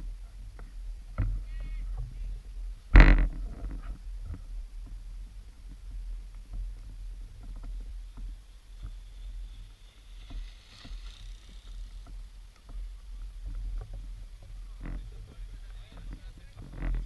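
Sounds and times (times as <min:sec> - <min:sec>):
bike tyres hissing in snow: 0:08.0 - 0:12.5.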